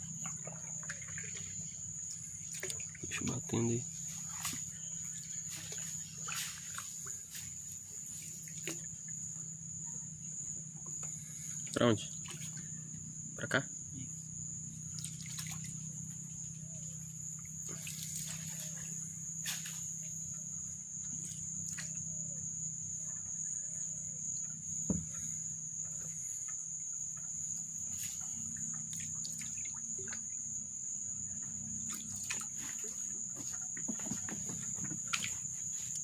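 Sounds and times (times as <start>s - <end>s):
water drips and splashes: 0.0s - 9.1s, 11.0s - 12.7s, 14.9s - 16.1s, 17.4s - 19.8s, 27.9s - 30.4s, 31.8s - 36.0s
high insect buzz: 0.0s - 36.0s
knocks on wooden canoe: 24.8s - 25.2s, 33.3s - 35.3s.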